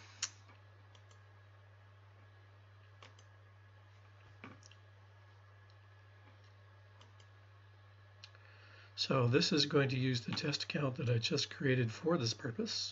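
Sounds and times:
steady low hum: 0:00.0 - 0:12.9
faint computer mouse clicks: 0:03.0 - 0:03.3, 0:07.0 - 0:07.3.

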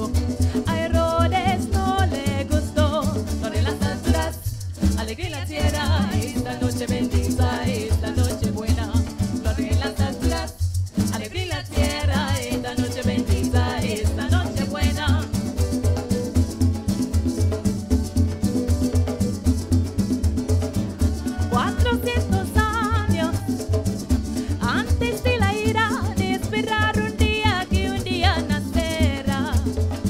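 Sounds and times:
voices singing: 0:00.0 - 0:10.6, 0:11.2 - 0:15.4, 0:21.1 - 0:23.6
maracas shaking: 0:00.0 - 0:30.0
pulsing bass: 0:00.0 - 0:30.0
strummed acoustic guitar: 0:00.0 - 0:30.0.

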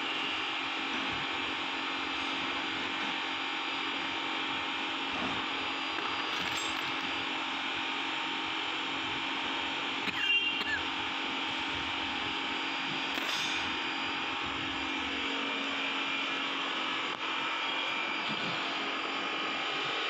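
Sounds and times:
metallic clink: 0:06.3 - 0:07.1.

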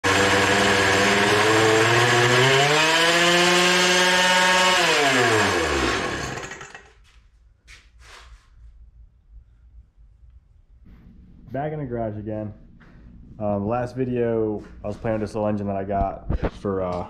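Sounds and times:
leaf blower engine revving: 0:00.0 - 0:07.0.

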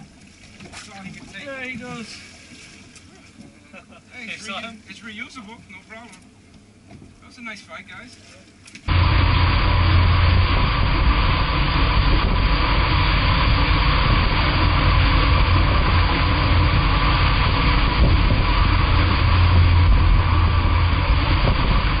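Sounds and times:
outboard motor drone: 0:00.0 - 0:22.0
water rushing from hull: 0:00.0 - 0:22.0
wind: 0:00.0 - 0:22.0.

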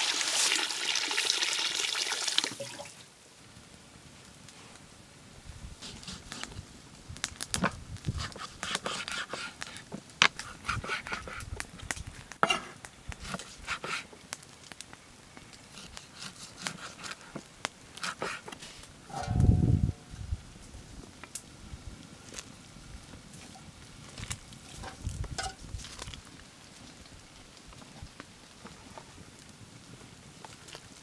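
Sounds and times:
knife cutting meat and bone: 0:08.2 - 0:11.4, 0:15.7 - 0:17.3, 0:18.0 - 0:18.6.

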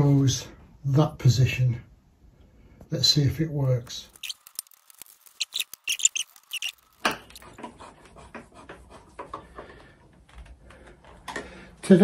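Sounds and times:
screwdriver squeaks and scrapes: 0:03.9 - 0:07.6.

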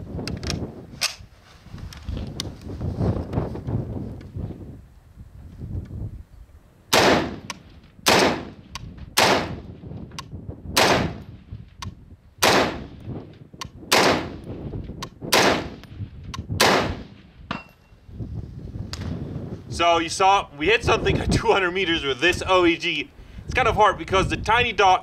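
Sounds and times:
rifle shots: 0:06.9 - 0:09.6, 0:10.8 - 0:11.2, 0:12.4 - 0:13.0, 0:13.9 - 0:14.4, 0:15.3 - 0:15.8, 0:16.6 - 0:17.3
sharp clicks: 0:07.4 - 0:07.7.

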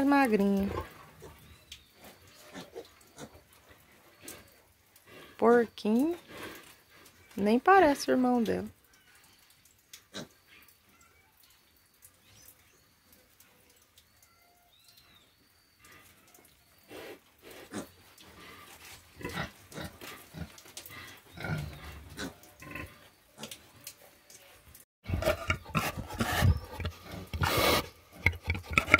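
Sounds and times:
pigs grunting and snuffling: 0:00.0 - 0:07.4, 0:15.8 - 0:28.9.

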